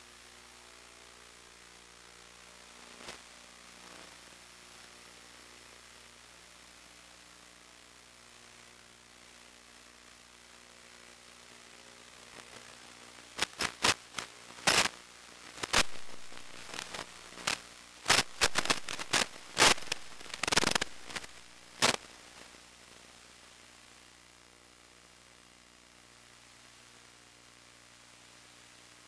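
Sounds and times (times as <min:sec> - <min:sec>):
static hiss: 0:00.0 - 0:29.0
sharp crackles and pops: 0:01.5 - 0:06.0, 0:10.0 - 0:23.7.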